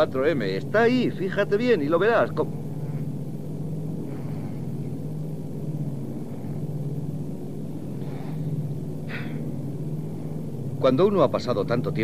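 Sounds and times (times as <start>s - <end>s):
twin piston engines droning: 0.0s - 12.0s.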